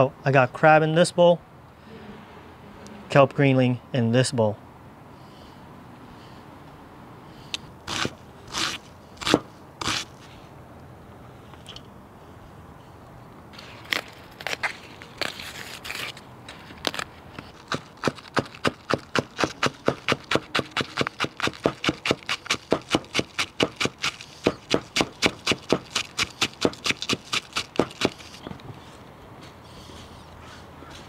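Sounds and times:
knife chopping cabbage on board: 17.6 - 28.3.

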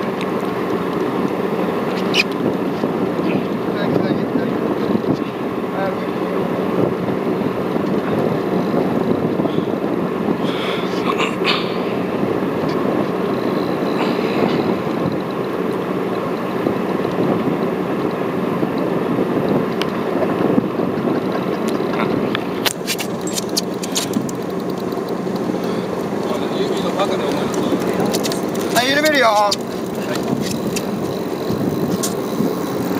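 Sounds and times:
boat engine running: 0.0 - 32.9
water noise: 0.0 - 32.9
wind: 0.0 - 32.9
sharp clicks: 21.7 - 26.4, 27.0 - 32.9.

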